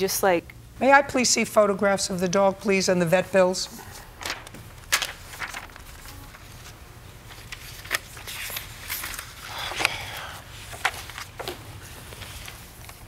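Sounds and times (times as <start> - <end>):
papers rustling: 3.7 - 13.0.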